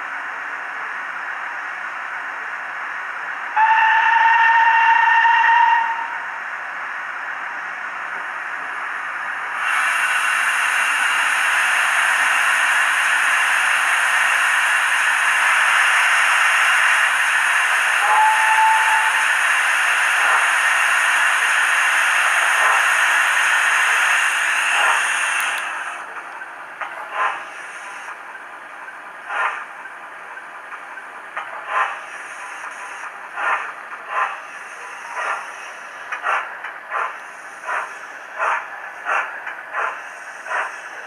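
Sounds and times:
steam hiss from small speaker: 0:09.6 - 0:26.0.

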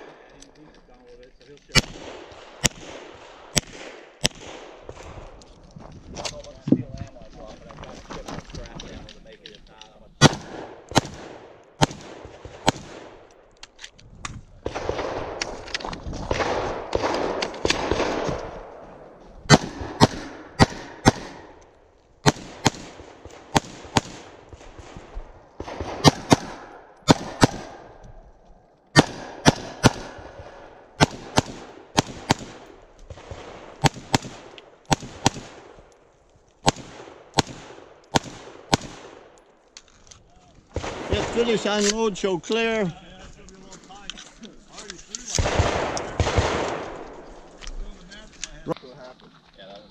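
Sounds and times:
steady rustling noise: 0:04.8 - 0:10.2
handgun shots: 0:25.6 - 0:27.9, 0:29.0 - 0:30.2.

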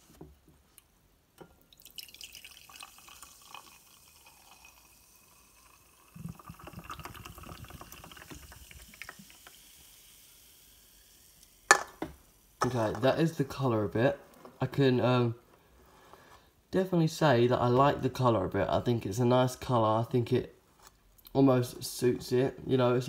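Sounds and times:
soft drink pouring into glass: 0:01.6 - 0:11.9
drink fizzing: 0:01.7 - 0:13.2.

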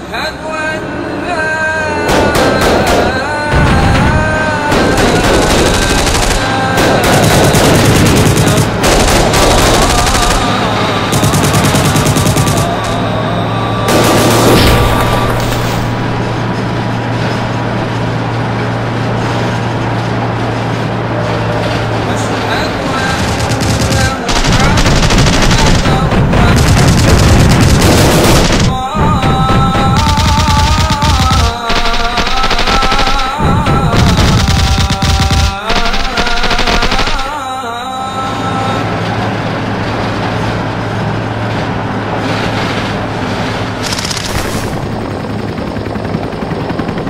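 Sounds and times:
engine-like rumble: 0:00.0 - 0:47.0
dense battle din: 0:01.9 - 0:18.1, 0:21.2 - 0:38.6
rapid automatic gunfire: 0:02.1 - 0:13.0, 0:13.9 - 0:16.0, 0:22.9 - 0:37.5, 0:43.8 - 0:45.0.

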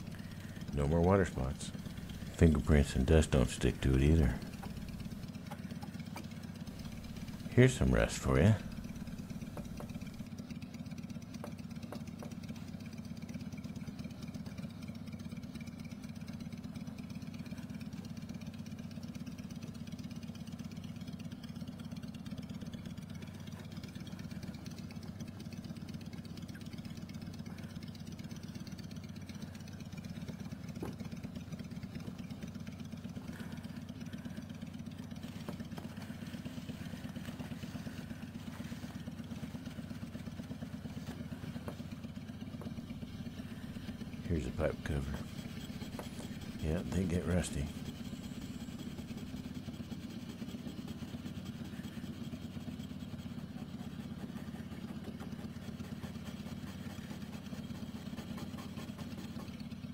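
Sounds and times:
low mechanical drone: 0:00.0 - 0:59.9
cloth rubbing on metal pipe: 0:35.2 - 0:42.0, 0:42.8 - 0:47.8.

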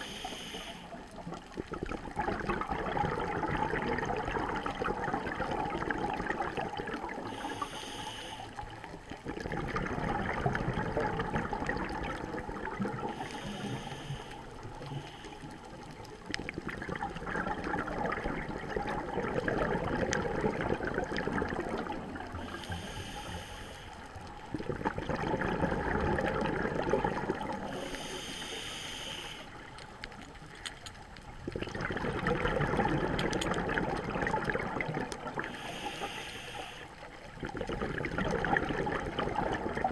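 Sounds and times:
regulator inhalation hiss: 0:00.0 - 0:01.0, 0:07.3 - 0:08.6, 0:13.2 - 0:15.5, 0:22.4 - 0:24.1, 0:27.7 - 0:29.6, 0:35.5 - 0:37.0
exhaled bubbles streaming: 0:01.0 - 0:07.7, 0:08.7 - 0:23.0, 0:24.1 - 0:28.2, 0:31.2 - 0:36.2, 0:37.0 - 0:39.9.

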